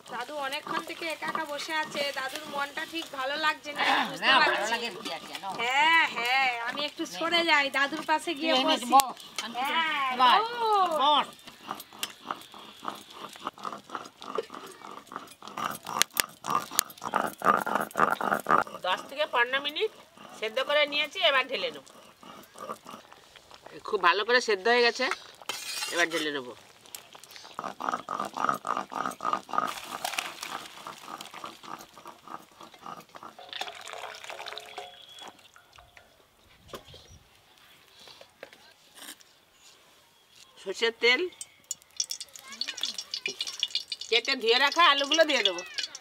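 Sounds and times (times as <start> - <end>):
stone grinding wet paste: 0.0 - 3.2, 10.2 - 23.7, 25.2 - 35.3, 41.7 - 46.0
drips and clicks: 4.7 - 23.8, 26.6 - 36.2, 41.3 - 46.0
water pouring with glugging: 29.7 - 35.9, 41.7 - 46.0
splashing: 41.7 - 46.0.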